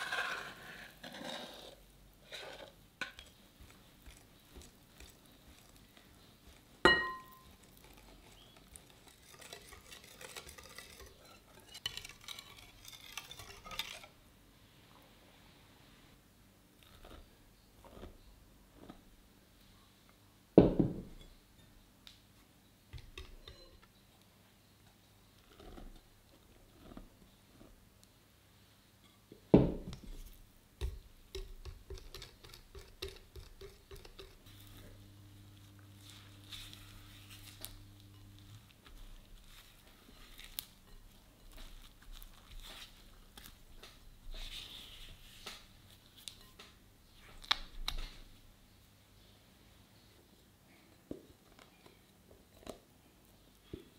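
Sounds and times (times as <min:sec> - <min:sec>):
spatula scraping dough in bowl: 0:00.0 - 0:14.2
spatula tapping glass bowl: 0:06.9 - 0:07.5.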